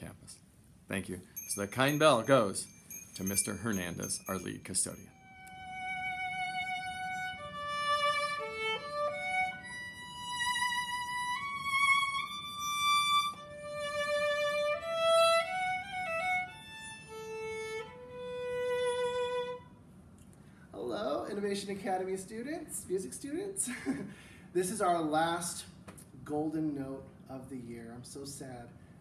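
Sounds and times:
solo violin melody: 5.2 - 19.7.

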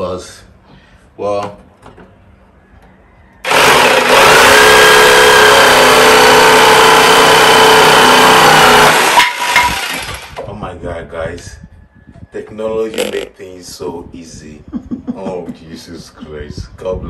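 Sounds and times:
electric jigsaw cutting wood: 3.4 - 10.4, 13.0 - 13.2.

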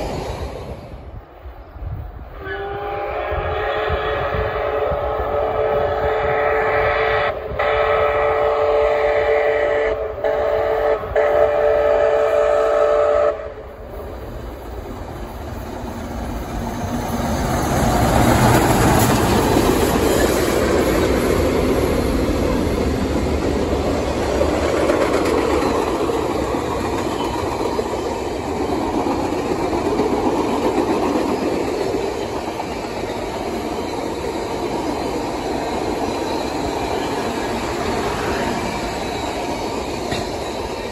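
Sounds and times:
steam locomotive passing: 0.0 - 40.9
steam whistle blowing: 2.4 - 13.6.

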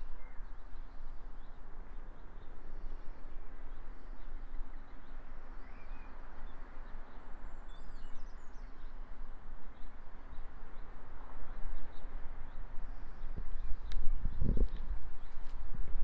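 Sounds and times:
wind buffeting microphone: 10.5 - 16.0.

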